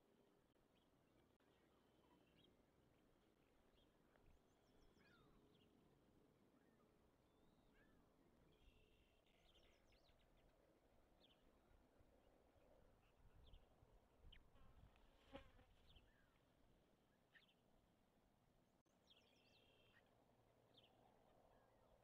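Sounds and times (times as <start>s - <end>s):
faint high bird chirps: 4.6s - 5.7s.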